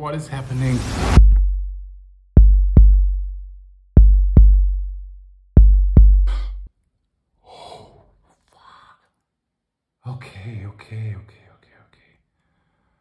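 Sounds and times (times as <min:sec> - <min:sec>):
booming heartbeat: 0:01.1 - 0:01.8, 0:02.4 - 0:03.3, 0:04.0 - 0:04.8, 0:05.6 - 0:06.7.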